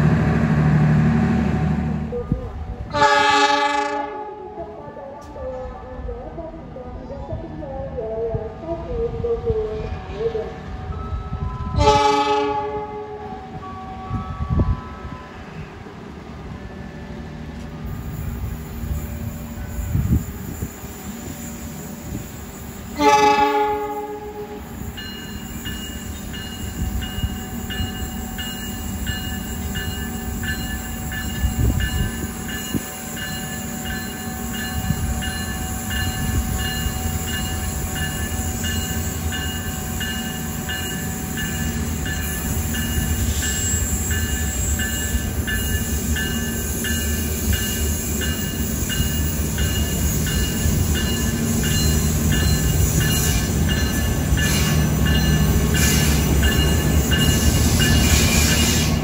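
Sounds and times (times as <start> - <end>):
train rumbling: 0.0 - 59.0
locomotive horn blast: 2.9 - 4.5, 11.7 - 13.3, 22.9 - 24.8.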